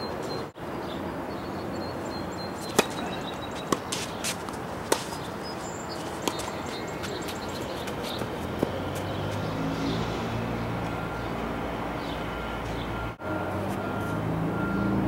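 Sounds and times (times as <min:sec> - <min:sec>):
tennis ball struck by rackets: 0:02.6 - 0:09.1
tennis ball bouncing on hard court: 0:02.6 - 0:09.4.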